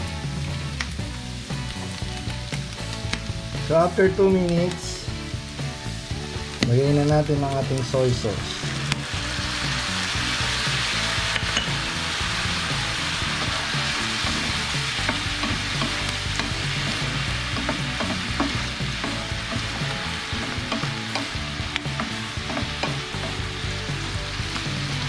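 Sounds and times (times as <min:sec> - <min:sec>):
vegetables sizzling in a frying pan: 0:00.0 - 0:25.0.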